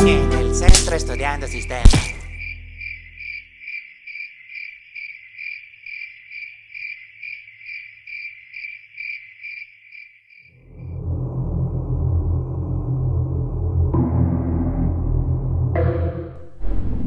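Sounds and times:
cricket chirping: 0:00.7 - 0:11.0
loud low rumble: 0:10.6 - 0:17.0.

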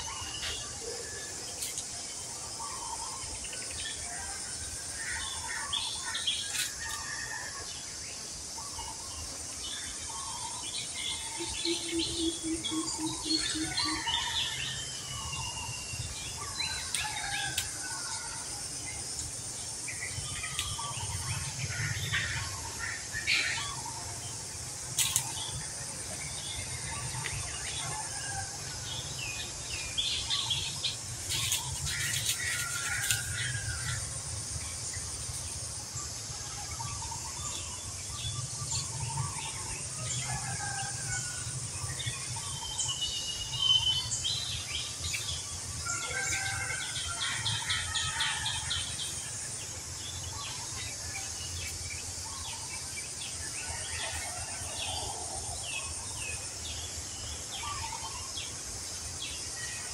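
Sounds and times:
high outdoor hiss: 0:00.0 - 0:59.9
birds chirping and calling: 0:08.6 - 0:34.4, 0:35.0 - 0:58.7.

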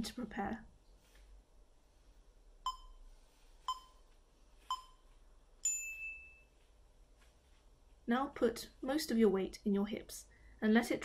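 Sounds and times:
short timer beeps: 0:02.7 - 0:03.0, 0:03.7 - 0:04.0, 0:04.7 - 0:05.0.

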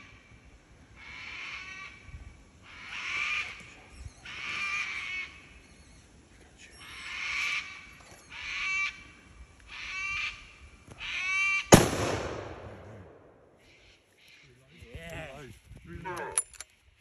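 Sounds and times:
drawn-out animal calls: 0:02.7 - 0:05.9, 0:06.6 - 0:11.7, 0:14.2 - 0:16.6.

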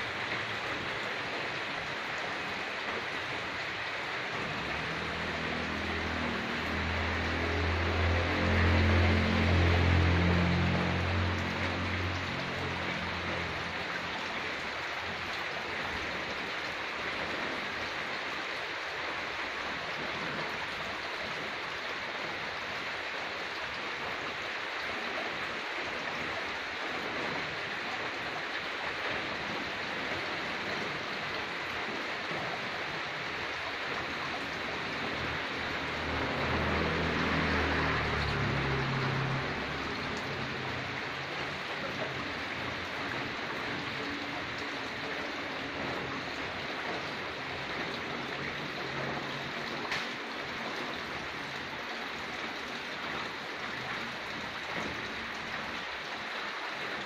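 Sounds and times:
rain on tree foliage: 0:00.0 - 0:57.0
low drone: 0:03.5 - 0:14.7, 0:33.6 - 0:50.1.

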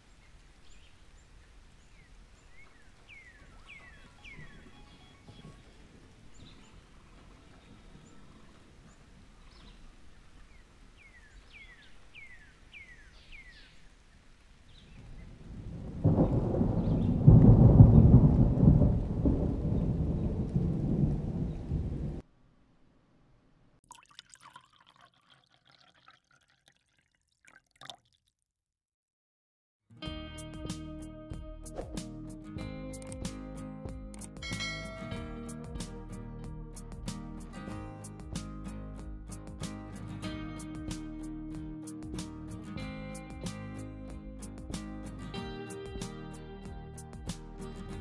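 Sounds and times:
bird chirps: 0:00.6 - 0:13.8
thunder rumble: 0:15.0 - 0:22.2.

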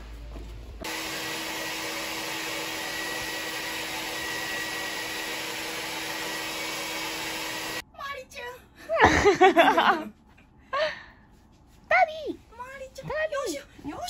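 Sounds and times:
hair dryer running: 0:00.8 - 0:07.8.

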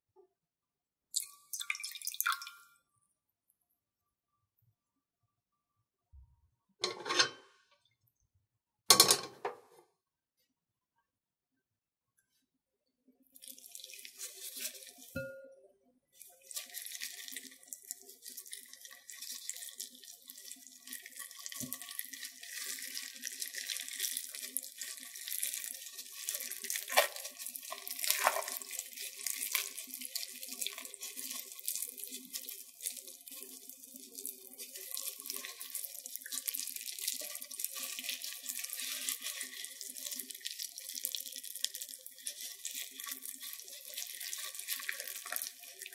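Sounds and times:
wet sticky crackling and squelching: 0:21.0 - 0:45.9.

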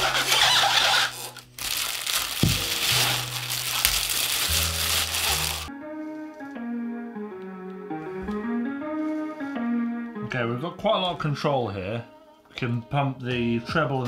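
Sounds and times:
plastic bags crinkling: 0:00.0 - 0:05.7
background music with bass line: 0:00.0 - 0:11.4.

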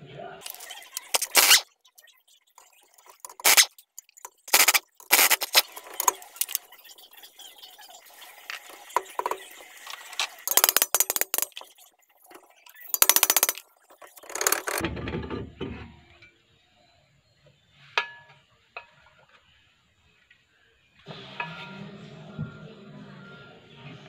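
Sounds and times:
pneumatic impact wrench hammering: 0:00.4 - 0:01.6, 0:03.2 - 0:03.7, 0:04.3 - 0:06.6, 0:10.5 - 0:11.5, 0:12.9 - 0:13.6, 0:14.2 - 0:14.8
brake drum scraping: 0:04.3 - 0:06.6, 0:14.2 - 0:16.0.

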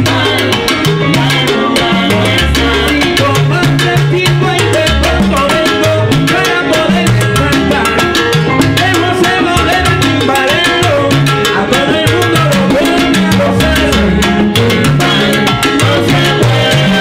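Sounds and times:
bass line: 0:00.0 - 0:17.0
hand drums and timbales: 0:00.0 - 0:17.0
brass section: 0:11.5 - 0:17.0.

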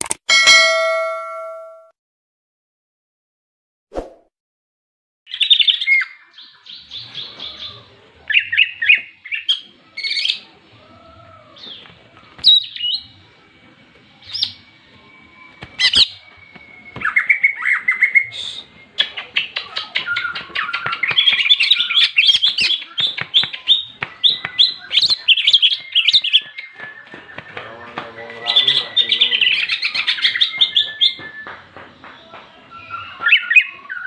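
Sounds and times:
bird chattering song: 0:05.3 - 0:13.5, 0:14.1 - 0:34.0.

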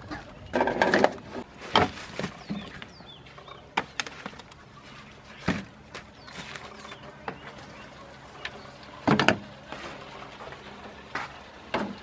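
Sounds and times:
corn husks rustling: 0:01.3 - 0:08.5, 0:09.6 - 0:10.6.

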